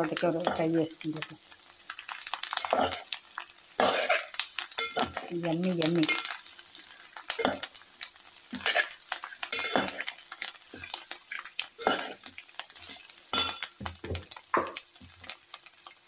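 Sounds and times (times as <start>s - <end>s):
frying sizzle: 0.0s - 16.0s
metal spoon scraping pan: 8.6s - 10.1s.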